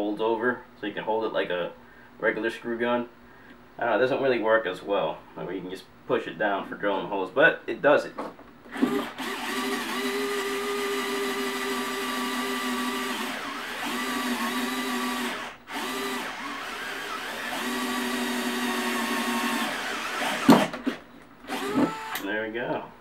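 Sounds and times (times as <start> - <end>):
drill motor whining: 8.7 - 22.3.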